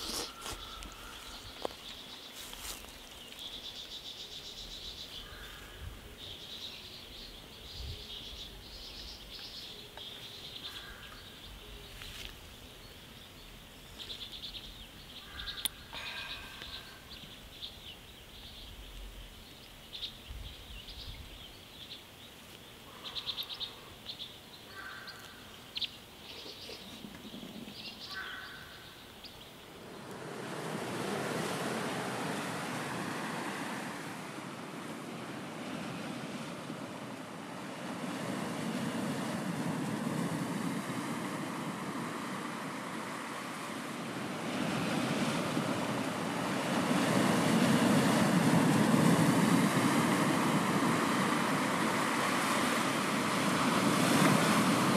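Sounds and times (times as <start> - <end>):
small birds chirping and trilling: 0.0 - 30.2
ocean surf: 15.2 - 18.1, 28.5 - 54.9.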